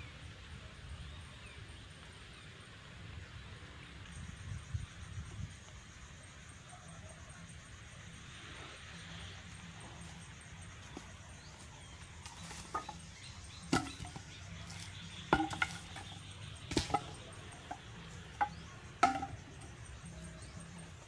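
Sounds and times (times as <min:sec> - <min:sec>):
wooden poles knocking together: 0:12.2 - 0:20.2.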